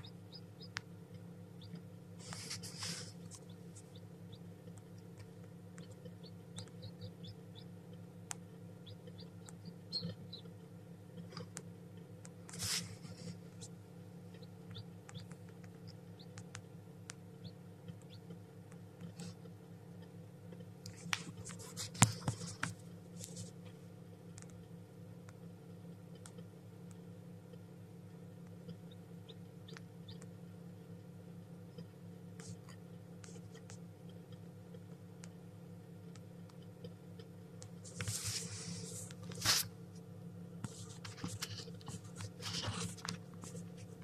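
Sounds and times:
steady low hum: 0:00.0 - 0:44.0
chick stirring in wood shavings: 0:02.2 - 0:04.0, 0:12.5 - 0:13.4, 0:21.0 - 0:23.6, 0:37.8 - 0:39.7, 0:40.7 - 0:44.0.

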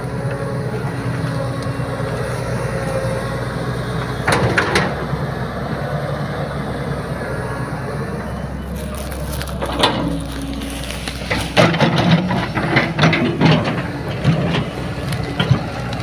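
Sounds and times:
excavator diesel engine under load: 0:00.0 - 0:16.0
brush and stumps cracking: 0:08.7 - 0:13.3, 0:14.2 - 0:16.0.

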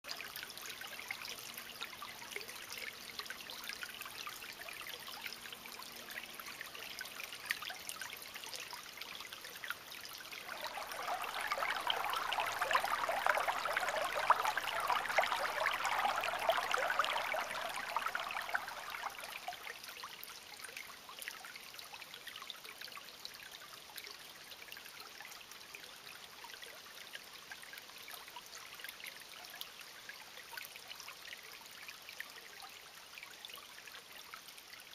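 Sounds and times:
creek water trickling over rocks: 0:00.0 - 0:34.9.

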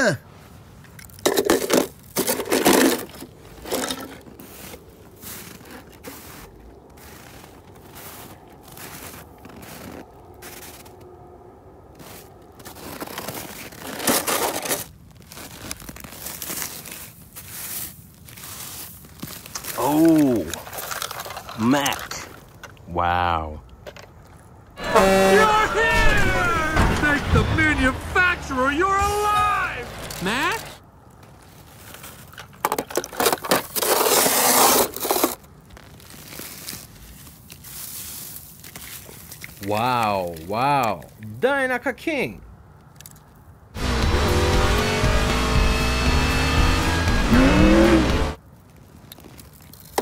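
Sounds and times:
snow crunching and scraping: 0:01.8 - 0:11.2, 0:11.9 - 0:22.6, 0:24.8 - 0:32.6, 0:33.2 - 0:40.6.

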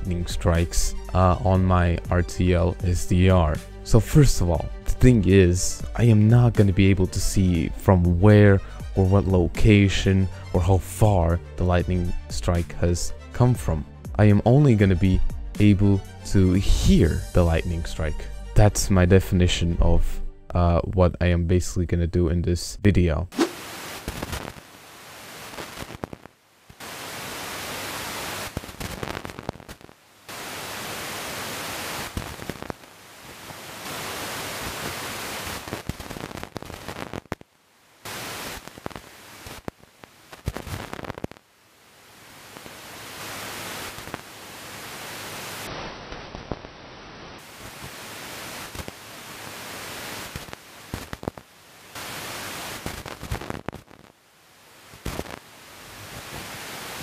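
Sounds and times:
radio static hiss: 0:00.0 - 0:19.7, 0:23.3 - 0:57.0
lightning crackles: 0:23.4 - 0:24.7.

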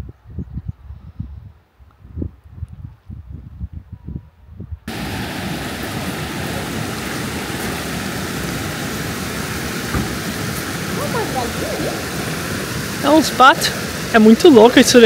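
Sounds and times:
waterfall rushing: 0:04.9 - 0:15.0.

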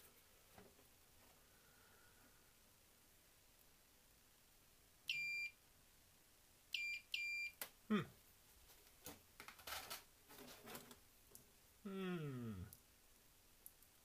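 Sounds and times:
continuity tester high beeps: 0:05.1 - 0:05.6, 0:06.8 - 0:07.6.

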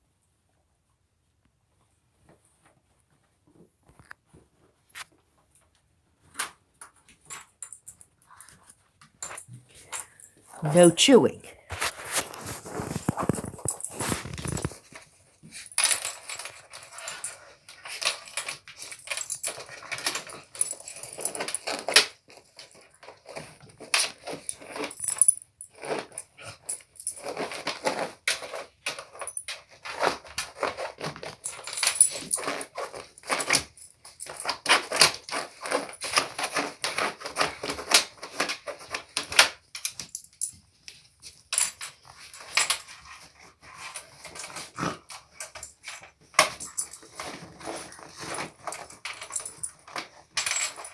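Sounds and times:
dogs scratching fabric and plastic: 0:11.7 - 0:25.1, 0:25.7 - 0:33.7, 0:34.4 - 0:39.6, 0:42.1 - 0:50.9.

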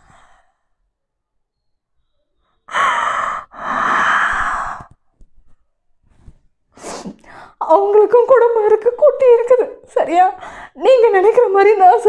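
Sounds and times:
woman breathing heavily crying: 0:02.7 - 0:05.0.

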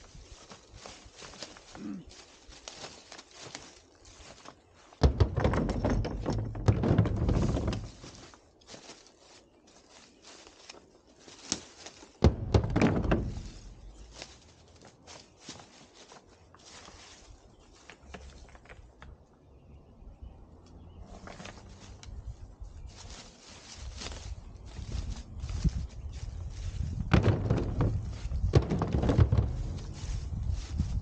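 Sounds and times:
footsteps in dry leaves: 0:00.0 - 0:05.0, 0:07.3 - 0:18.4, 0:21.1 - 0:27.1, 0:27.8 - 0:31.0
stones clattering and rolling: 0:04.3 - 0:08.8, 0:11.4 - 0:14.5, 0:17.8 - 0:19.2, 0:26.6 - 0:30.4
rocks thunking into truck bed: 0:05.0 - 0:08.2, 0:12.2 - 0:14.0, 0:26.9 - 0:30.4.

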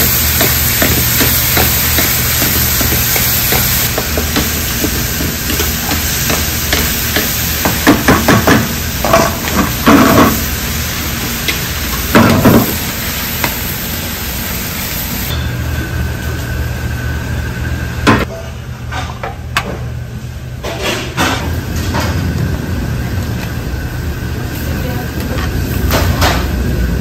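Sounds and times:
food sizzling: 0:00.0 - 0:15.3.

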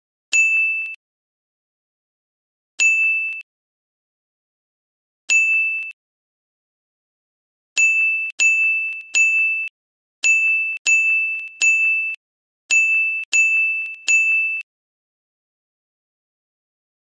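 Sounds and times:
high-pitched ding-like chime: 0:00.3 - 0:01.0, 0:02.8 - 0:03.5, 0:05.3 - 0:06.0, 0:07.8 - 0:14.7.

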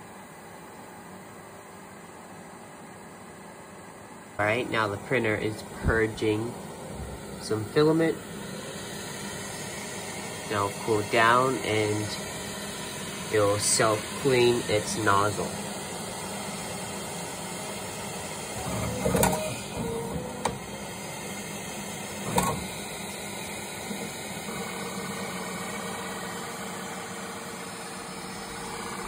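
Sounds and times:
fans running: 0:00.0 - 0:29.0
faint high whine: 0:04.3 - 0:20.6.

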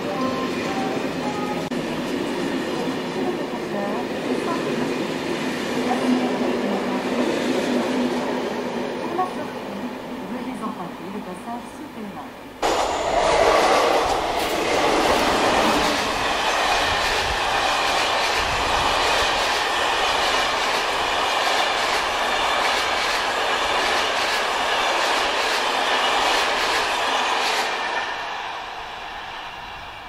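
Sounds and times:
train rushing rumble: 0:12.6 - 0:30.0.

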